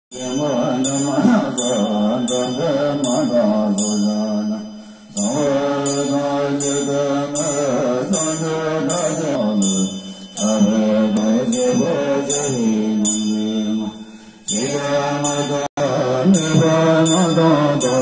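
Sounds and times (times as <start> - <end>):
group chanting in unison: 0.2 - 4.6, 5.2 - 9.7.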